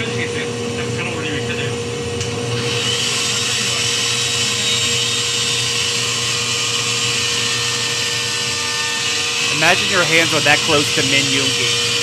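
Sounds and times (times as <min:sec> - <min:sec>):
table saw running: 0:02.4 - 0:12.0
saw blade cutting wood: 0:06.2 - 0:12.0.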